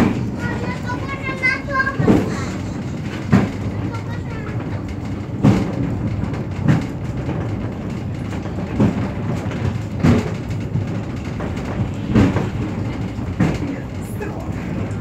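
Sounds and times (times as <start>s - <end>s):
funicular car rumbling on track: 0.0s - 15.0s
heavy thumps: 8.4s - 14.0s.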